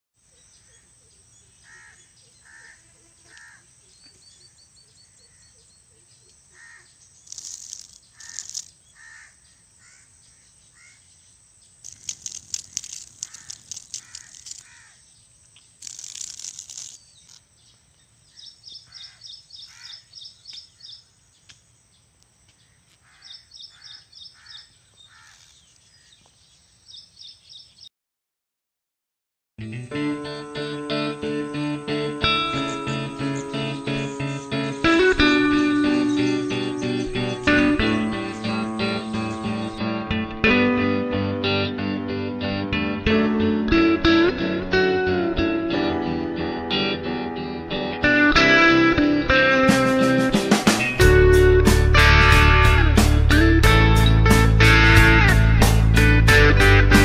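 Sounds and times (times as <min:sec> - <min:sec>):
birds calling: 0:00.4 - 0:27.9, 0:31.0 - 0:39.8
high rapid chirping trills: 0:07.2 - 0:08.7, 0:11.8 - 0:14.7, 0:15.8 - 0:17.4, 0:31.3 - 0:39.8
rustling noise: 0:07.2 - 0:08.8, 0:11.8 - 0:14.8, 0:15.6 - 0:17.5.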